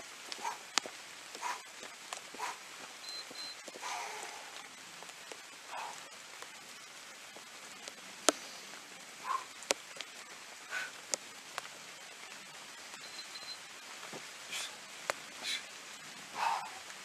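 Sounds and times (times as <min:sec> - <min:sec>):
faint steady hiss: 0:00.0 - 0:17.0
person breathing heavily: 0:02.3 - 0:02.8, 0:03.8 - 0:04.6, 0:05.7 - 0:06.2, 0:10.6 - 0:11.0, 0:14.4 - 0:14.8, 0:15.4 - 0:16.9.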